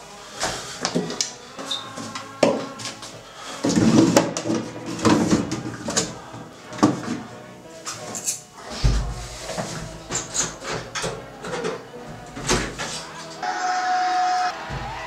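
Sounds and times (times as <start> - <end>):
background music: 0.0 - 15.0
toiletry bottles clattering: 3.6 - 7.2, 8.9 - 13.0.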